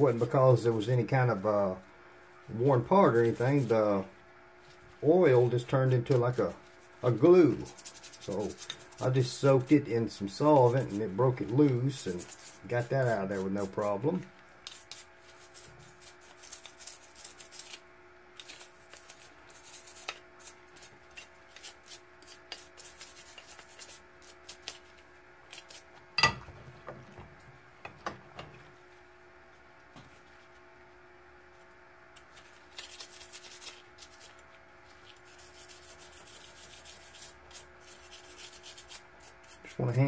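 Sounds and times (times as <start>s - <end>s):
sharp metallic clank: 26.2s - 26.5s.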